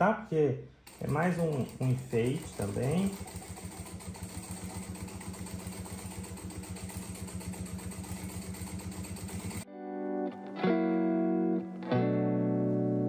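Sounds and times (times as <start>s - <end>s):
sewing machine stitching: 0.8s - 9.6s.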